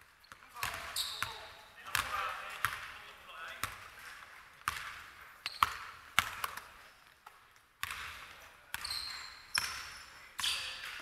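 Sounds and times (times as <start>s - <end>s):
sneaker squeaks: 0.2s - 1.8s, 5.4s - 6.0s, 8.7s - 11.0s
basketball bouncing on wooden floor: 0.3s - 3.0s, 3.6s - 4.0s, 4.6s - 6.7s, 7.8s - 10.0s.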